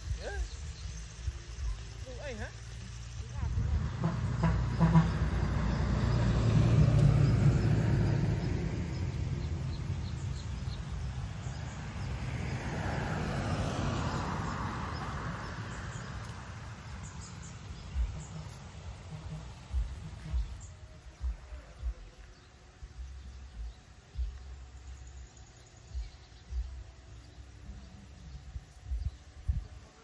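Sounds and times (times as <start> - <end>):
road vehicles passing: 0.0 - 30.0.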